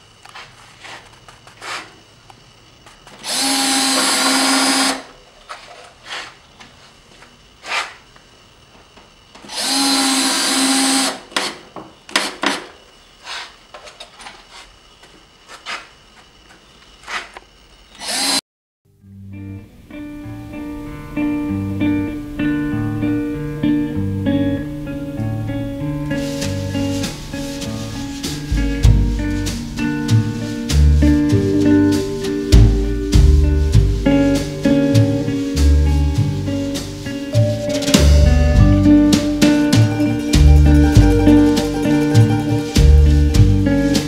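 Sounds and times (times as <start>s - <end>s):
power drill running: 3.1s - 5.2s, 9.3s - 12.7s, 17.9s - 18.4s
guitar music: 18.9s - 44.0s.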